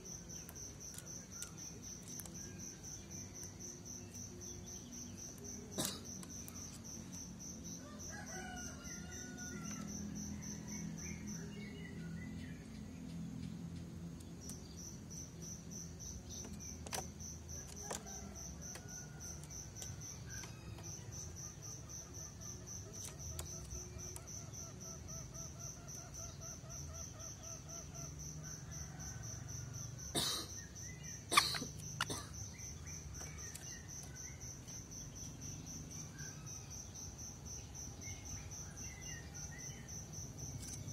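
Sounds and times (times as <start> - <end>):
insects chirping: 0.0 - 40.9
rooster crowing: 7.8 - 10.6.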